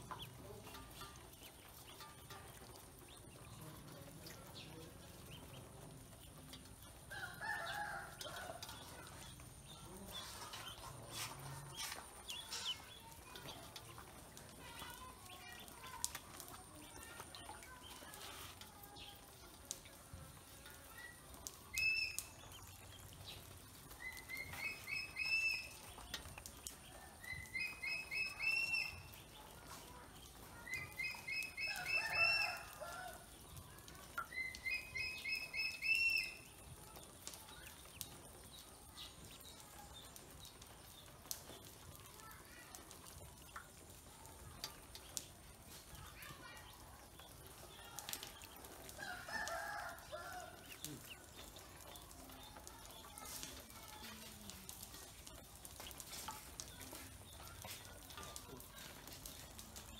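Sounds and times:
ducklings peeping: 0:05.1 - 0:06.3, 0:08.7 - 0:14.2, 0:21.8 - 0:29.4, 0:34.2 - 0:36.4.

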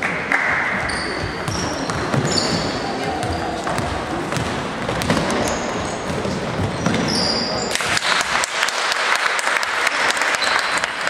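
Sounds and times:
sneaker squeaks: 0:00.7 - 0:07.8, 0:10.4 - 0:10.8
footsteps on hardwood court: 0:00.8 - 0:07.4
basketball bouncing: 0:00.8 - 0:08.4.

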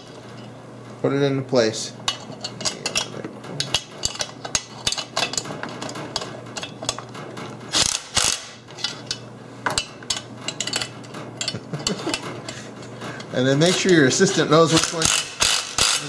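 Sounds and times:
metallic clicks and rattles: 0:02.1 - 0:12.6
cordless drill burst: 0:14.8 - 0:16.0.

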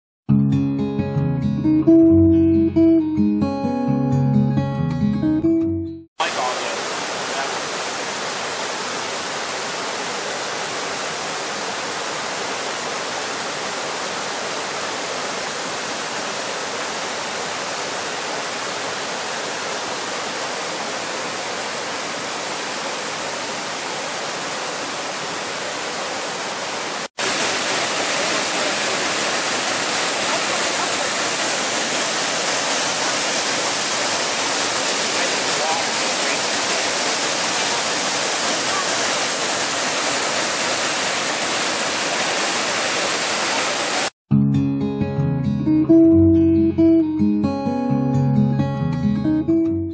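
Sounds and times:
waterfall pouring into pool: 0:06.2 - 0:44.2.

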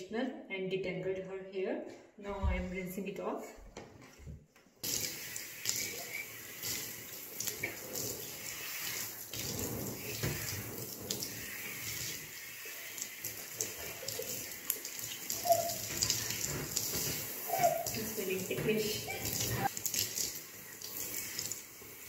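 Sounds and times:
water rinsing through hair: 0:04.8 - 0:22.0.

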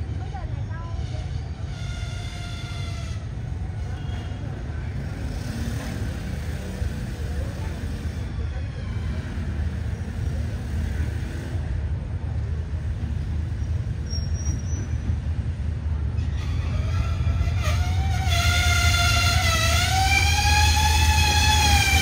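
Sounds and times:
locomotive engine rumble: 0:00.0 - 0:22.0
train horn blast: 0:16.2 - 0:22.0.

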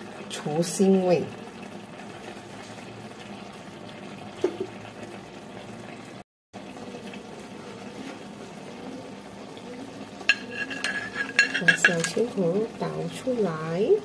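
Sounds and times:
rice simmering with watery hiss: 0:00.0 - 0:14.0
dishes clinking: 0:10.3 - 0:12.3.

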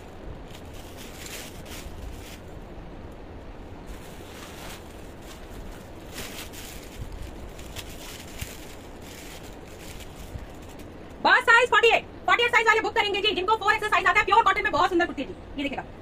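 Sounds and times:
cloth rustling: 0:00.0 - 0:02.6, 0:03.8 - 0:11.2
steady low rumble: 0:00.0 - 0:16.0.

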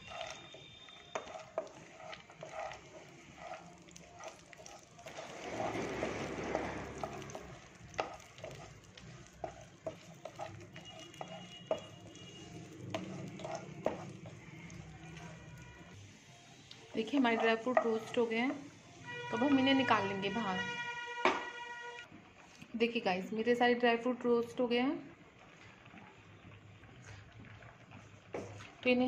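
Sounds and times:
spoon scraping against pan: 0:00.0 - 0:16.0, 0:16.9 - 0:20.0
dry fruits frying in ghee: 0:00.0 - 0:29.0.

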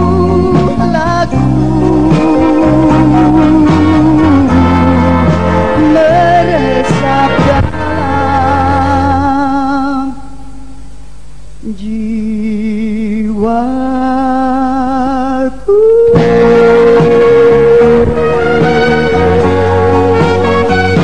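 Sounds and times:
band accompaniment: 0:00.0 - 0:09.3, 0:16.2 - 0:21.0
person singing with vibrato: 0:00.0 - 0:11.0, 0:11.6 - 0:21.0.

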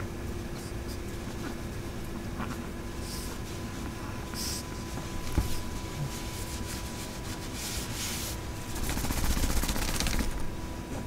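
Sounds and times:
heater hum blowing air: 0:00.0 - 0:11.0
hands rubbing dog's jacket: 0:04.4 - 0:10.5.

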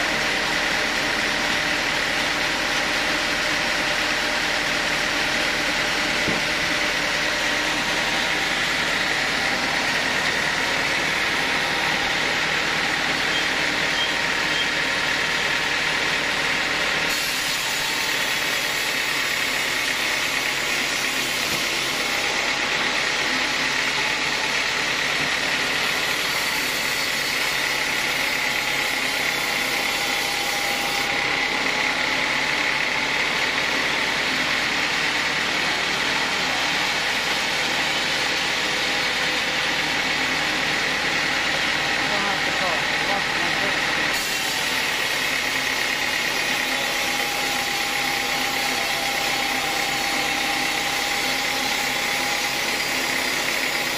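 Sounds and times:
band saw high whine: 0:00.0 - 0:53.9
saw cutting log hiss: 0:17.0 - 0:22.3.

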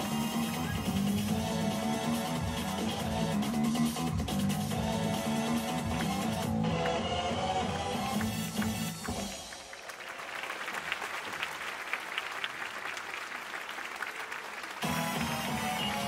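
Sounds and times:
music: 0:00.0 - 0:09.8, 0:14.8 - 0:16.0
audience applauding: 0:05.8 - 0:16.0.

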